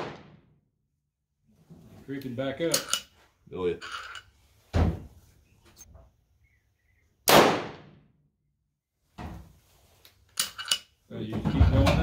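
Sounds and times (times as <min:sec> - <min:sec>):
gunshot with echo: 0:00.0 - 0:00.4, 0:07.3 - 0:08.0.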